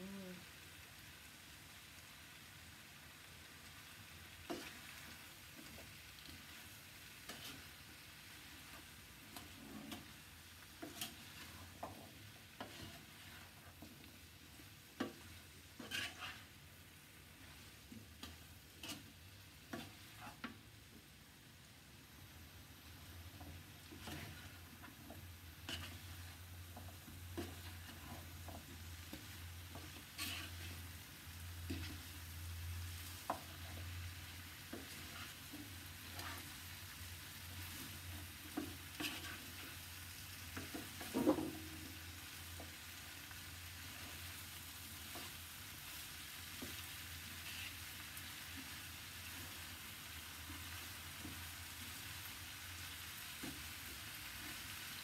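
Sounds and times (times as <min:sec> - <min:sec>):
vegetables sizzling in a pan: 0:00.0 - 0:55.0
spatula scraping and knocking pan: 0:04.4 - 0:06.6, 0:07.2 - 0:07.9, 0:08.6 - 0:16.6, 0:17.4 - 0:20.6, 0:23.3 - 0:30.9, 0:31.6 - 0:32.2, 0:33.1 - 0:34.0, 0:34.6 - 0:36.7, 0:37.6 - 0:39.8, 0:40.4 - 0:42.8, 0:46.5 - 0:47.8.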